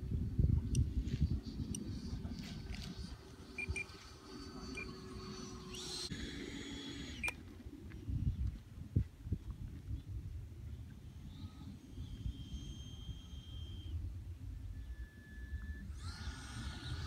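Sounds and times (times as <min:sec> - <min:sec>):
wind buffeting microphone: 0:00.0 - 0:17.0
model jet whine: 0:00.8 - 0:07.5, 0:11.0 - 0:17.0.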